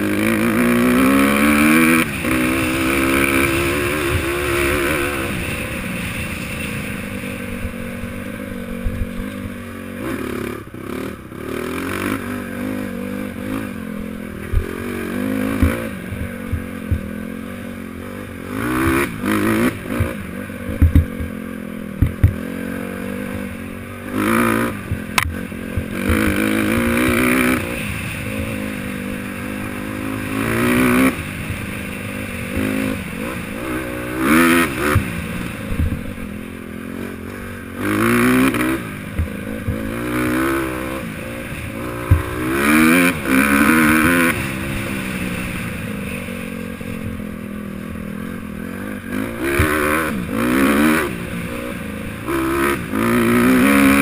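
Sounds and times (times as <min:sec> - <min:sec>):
dirt bike engine revving: 0:00.0 - 0:54.0
bike knocking and clattering: 0:20.0 - 0:22.4, 0:42.0 - 0:42.7.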